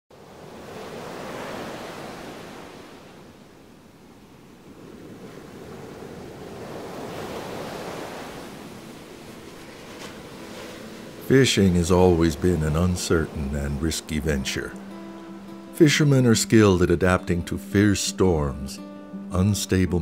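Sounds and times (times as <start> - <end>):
ocean waves breaking: 0.1 - 20.0.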